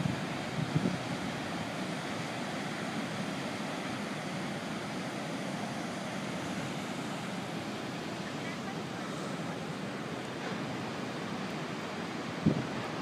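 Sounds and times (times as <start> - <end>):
waves crashing: 0.0 - 13.0.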